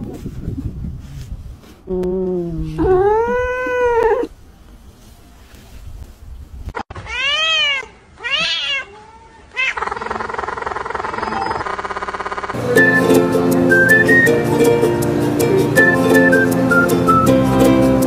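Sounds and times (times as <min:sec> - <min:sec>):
cats meowing: 0:02.8 - 0:04.3, 0:06.9 - 0:11.9.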